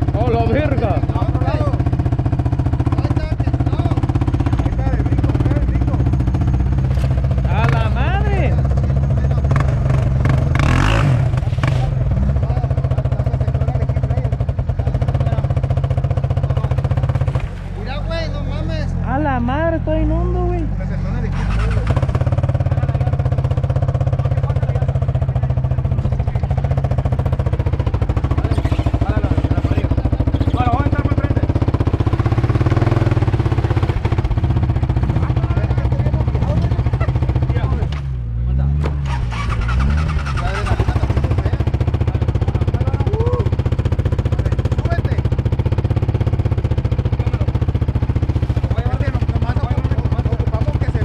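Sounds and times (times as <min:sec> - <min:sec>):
quad bike engine running: 0:00.0 - 0:51.0.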